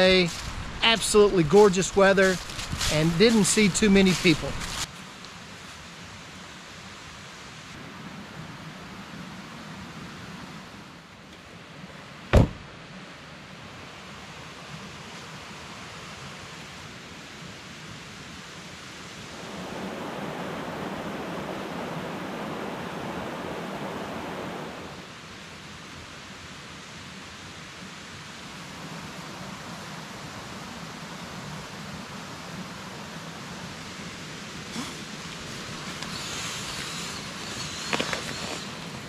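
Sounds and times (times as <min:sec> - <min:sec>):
flowing creek rushing: 0:00.0 - 0:11.8, 0:18.1 - 0:39.0.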